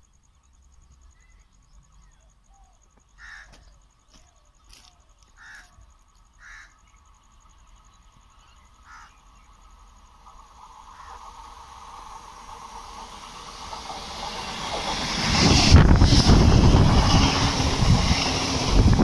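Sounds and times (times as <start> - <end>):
bird calling: 1.1 - 7.0, 8.4 - 9.5.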